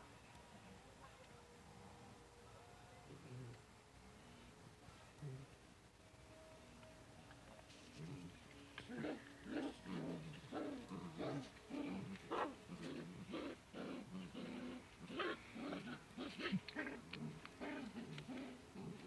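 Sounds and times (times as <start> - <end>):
small dogs growling: 3.0 - 3.7, 5.2 - 5.6, 7.9 - 19.0.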